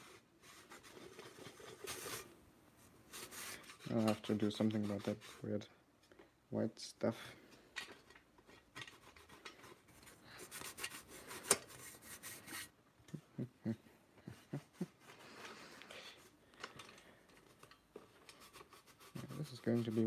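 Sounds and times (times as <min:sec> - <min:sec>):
cloth rubbing on steel helmet: 0:00.0 - 0:05.7, 0:08.8 - 0:12.8, 0:17.5 - 0:20.0.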